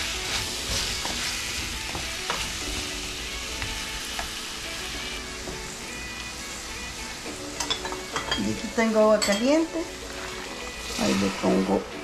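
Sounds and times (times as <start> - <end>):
vegetables sizzling in oil: 0.0 - 12.0
wooden spoon scraping a pot: 7.6 - 11.6.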